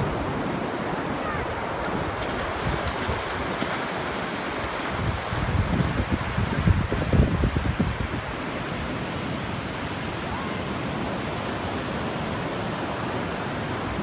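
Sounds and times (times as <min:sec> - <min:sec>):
wind buffeting microphone: 0:00.0 - 0:09.0
ocean surf breaking: 0:00.0 - 0:14.0.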